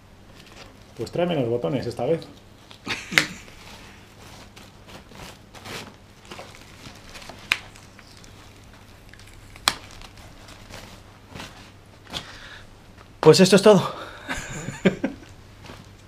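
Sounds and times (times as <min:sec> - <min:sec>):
plastic wrapping crinkling: 0:00.3 - 0:01.2, 0:01.8 - 0:13.1, 0:14.5 - 0:16.0.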